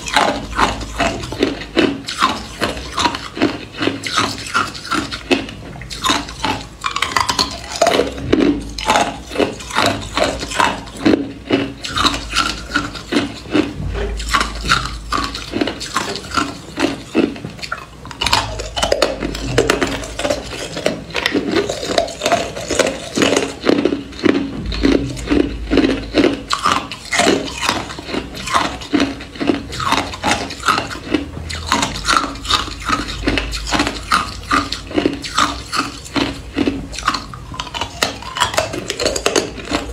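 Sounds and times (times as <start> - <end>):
ice cubes crunched in mouth: 0.0 - 39.9.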